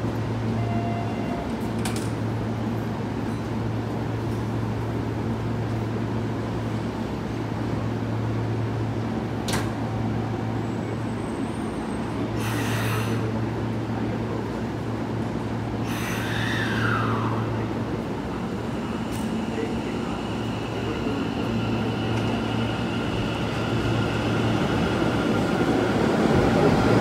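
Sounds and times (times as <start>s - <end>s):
electric train humming: 12.0s - 27.0s.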